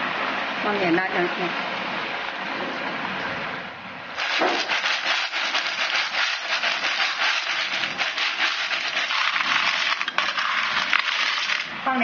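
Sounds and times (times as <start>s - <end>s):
shells clattering against a pan: 4.2s - 11.7s
snails sizzling in a hot wok: 4.2s - 12.0s.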